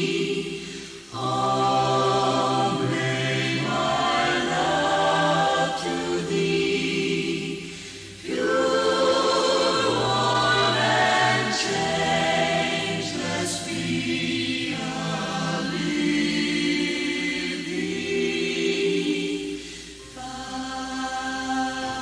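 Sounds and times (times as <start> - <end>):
choir singing long held notes: 0.0 - 22.0.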